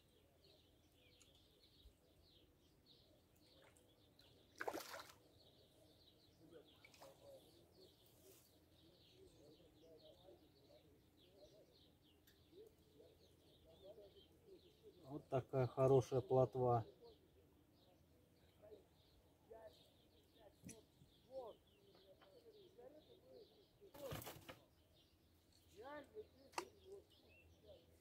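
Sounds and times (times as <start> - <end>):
small birds chirping: 0.0 - 28.0
splash in water: 4.5 - 5.2.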